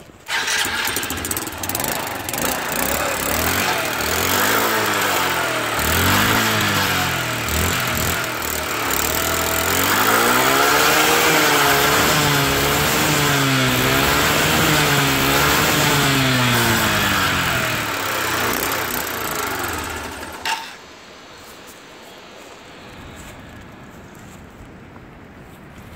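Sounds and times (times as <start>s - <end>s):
scooter engine revving: 0.0s - 20.8s.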